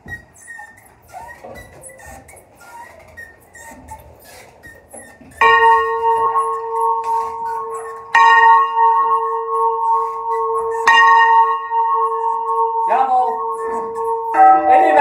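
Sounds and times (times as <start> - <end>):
church bell ringing: 5.4 - 15.0.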